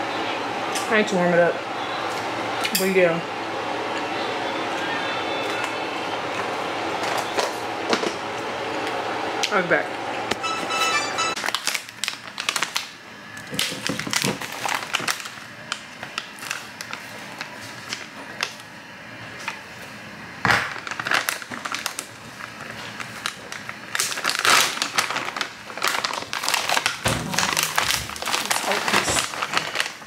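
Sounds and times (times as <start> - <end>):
plastic packaging crinkling: 11.4 - 18.6, 20.6 - 30.0.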